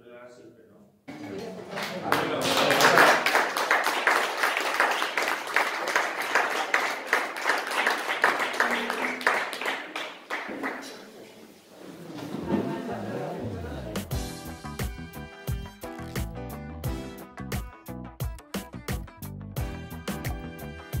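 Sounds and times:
audience applauding: 1.1 - 11.1.

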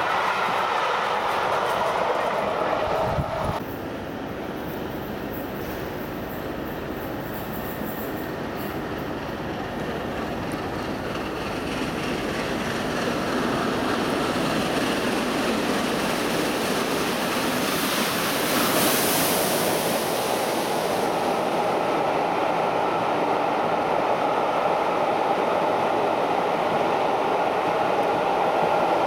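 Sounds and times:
coach wheels rumbling on rails: 0.0 - 29.0
diesel train moving off: 0.0 - 29.0
steam hissing: 11.6 - 22.1.

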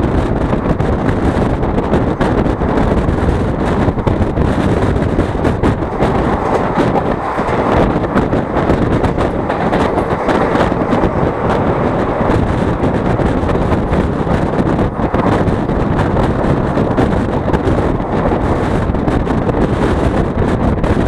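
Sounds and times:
train wheels on rails: 0.0 - 21.0
wind over microphone: 0.0 - 21.0.

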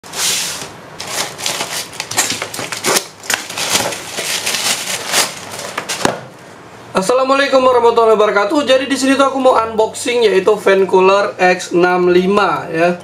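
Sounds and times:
plastic bag crinkling: 1.0 - 6.0.

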